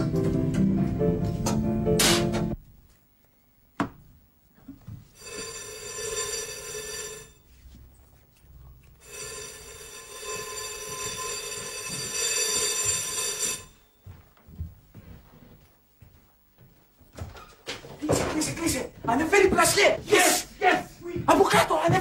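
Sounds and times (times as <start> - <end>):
doorbell buzzer ringing: 5.2 - 7.5, 9.0 - 14.2.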